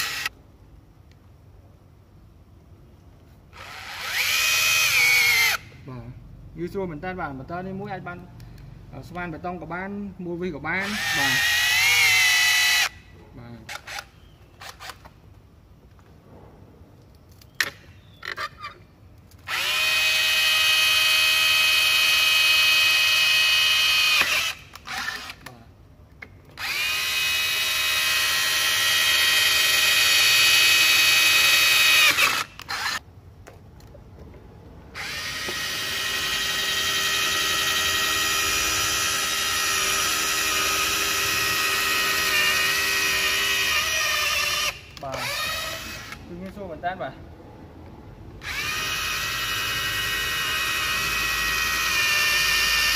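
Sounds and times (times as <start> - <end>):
rotary hammer drilling metal: 0.0 - 0.3, 3.6 - 5.6, 10.8 - 13.0, 19.5 - 25.5, 26.6 - 33.0, 35.0 - 46.2, 48.4 - 52.9
rotary hammer drilling wood: 0.0 - 0.3, 3.5 - 5.7, 10.8 - 13.0, 19.4 - 25.5, 26.6 - 33.0, 35.0 - 46.2, 48.4 - 52.9.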